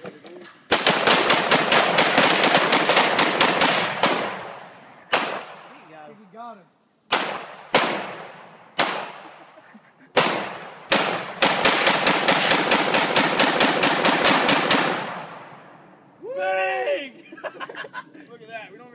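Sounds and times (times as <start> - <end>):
gunshots with echo: 0.7 - 5.8, 7.1 - 9.4, 10.2 - 15.7.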